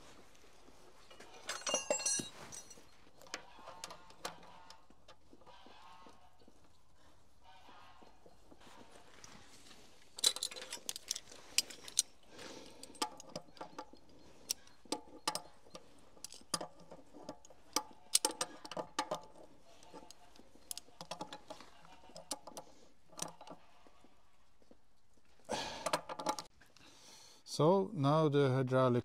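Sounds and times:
metal clinks from hand tools: 1.4 - 2.9.

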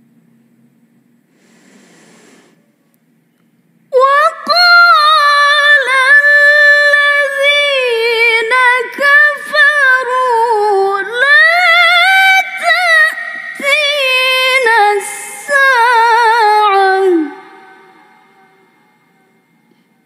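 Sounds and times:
woman reciting melodically: 3.9 - 19.5.

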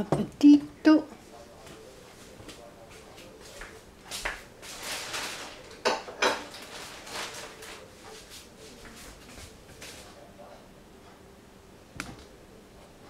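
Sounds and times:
crockery clinking: 5.8 - 6.6.

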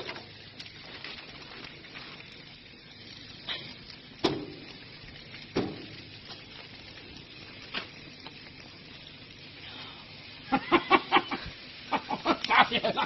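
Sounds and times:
gas grill hissing and sizzling: 0.0 - 13.0.

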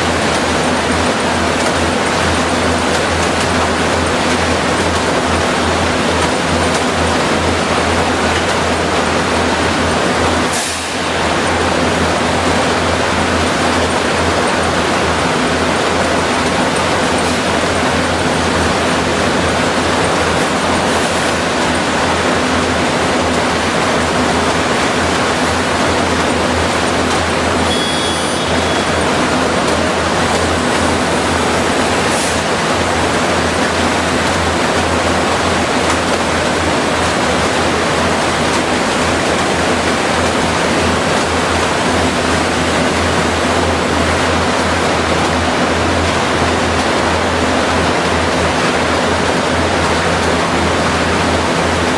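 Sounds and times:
machinery roar: 0.0 - 51.9
high electronic tone: 27.7 - 29.0.

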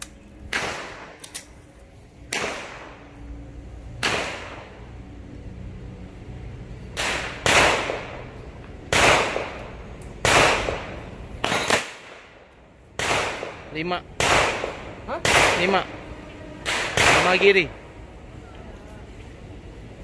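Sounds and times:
pistol shots with ringing echo: 0.5 - 1.2, 2.3 - 3.1, 4.0 - 4.9, 6.9 - 12.4, 13.0 - 16.0, 16.6 - 17.8.

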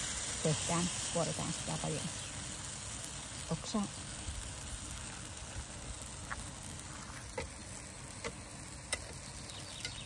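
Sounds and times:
batter sizzling on griddle: 0.0 - 10.0.

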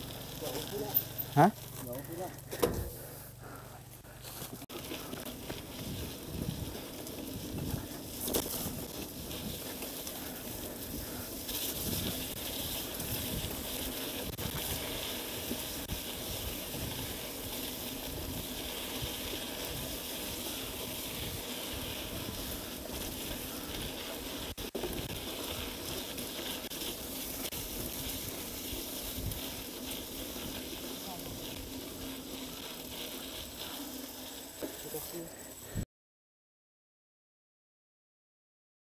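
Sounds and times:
tyres rolling on dirt: 0.0 - 35.8
wind buffeting microphone: 5.6 - 8.0.

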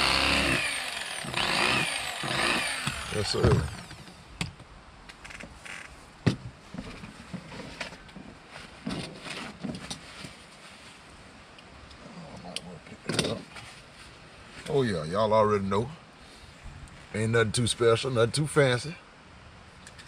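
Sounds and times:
electric knife whining: 0.0 - 4.2.

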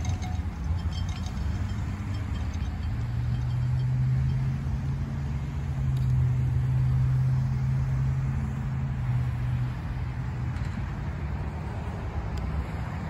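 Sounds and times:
freight train cars rolling: 0.0 - 4.7
road traffic driving by: 0.0 - 13.0.

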